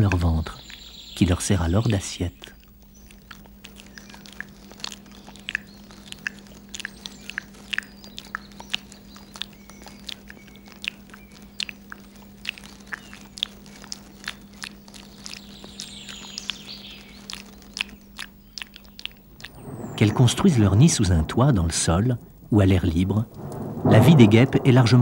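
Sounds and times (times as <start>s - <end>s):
larvae chewing wet clicks: 1.9s - 20.0s
steady low hum: 19.2s - 25.0s
faint squeaks: 19.3s - 25.0s.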